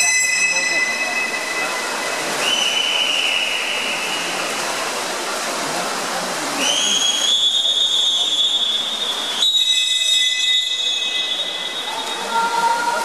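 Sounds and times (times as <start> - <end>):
long high whistles: 0.0 - 4.3, 6.6 - 12.3
noisy din: 0.0 - 4.9.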